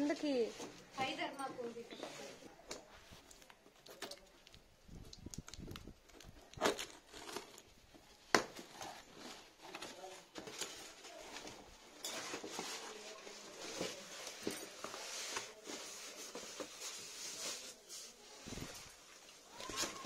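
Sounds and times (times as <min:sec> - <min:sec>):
cardboard rustling: 0:06.0 - 0:20.0.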